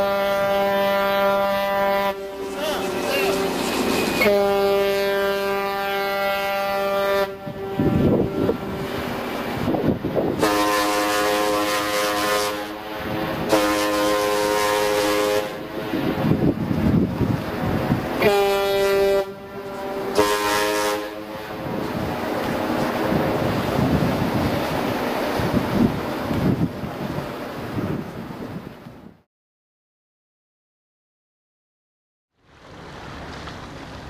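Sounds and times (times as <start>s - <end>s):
ship horns blasting: 0.0s - 16.8s, 17.4s - 23.7s.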